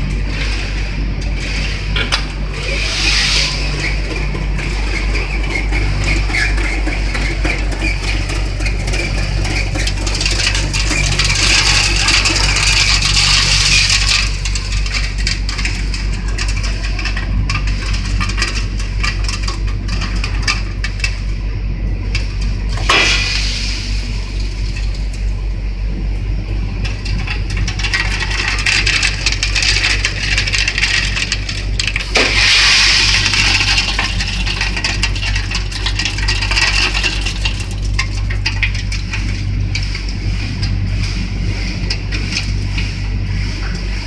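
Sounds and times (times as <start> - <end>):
low motor hum: 0.0 - 44.0
beans rattling in steel basket: 3.9 - 21.2, 26.7 - 43.2.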